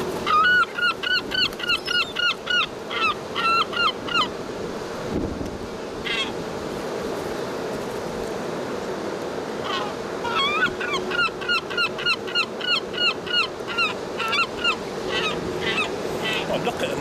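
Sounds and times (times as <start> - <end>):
gulls calling: 0.0 - 4.4, 6.0 - 6.4, 9.5 - 17.0
steady background noise: 0.0 - 17.0.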